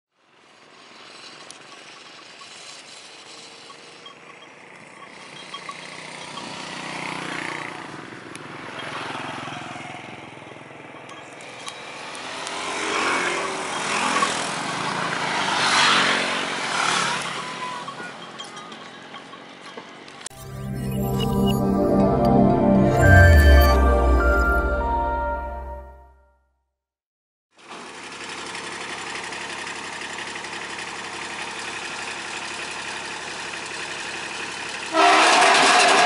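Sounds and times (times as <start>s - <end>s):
small motorcycles passing: 0.5s - 19.7s.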